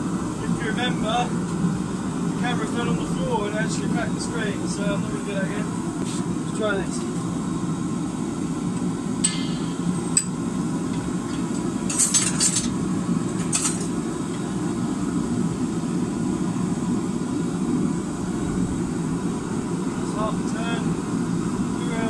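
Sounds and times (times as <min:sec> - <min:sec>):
steady low forge noise: 0:00.0 - 0:22.0
tongs and wrench clinking on steel: 0:11.3 - 0:12.8.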